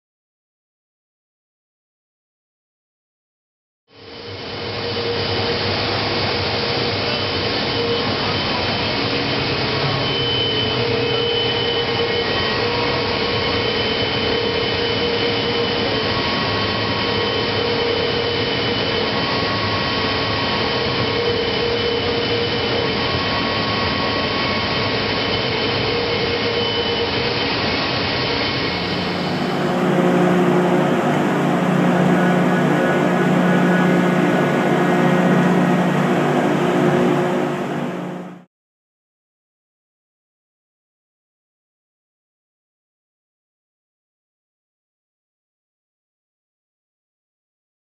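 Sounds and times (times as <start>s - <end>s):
recycling machinery running: 4.0s - 38.5s
faint whining tones: 28.6s - 38.4s
machine low hum: 28.6s - 38.5s.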